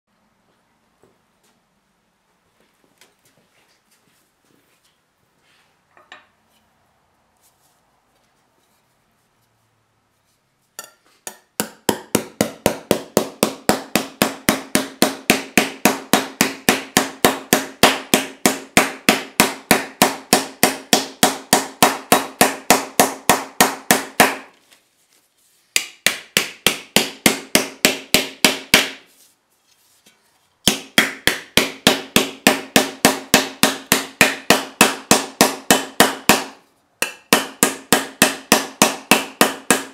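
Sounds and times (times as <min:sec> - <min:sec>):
hammer beating copper disc: 0:10.8 - 0:24.5, 0:25.7 - 0:29.1, 0:30.6 - 0:39.9.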